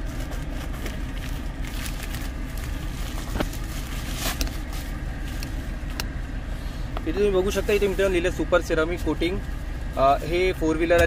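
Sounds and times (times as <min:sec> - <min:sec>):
plastic crinkling: 0:00.0 - 0:05.5
steady low rumble: 0:00.0 - 0:11.0.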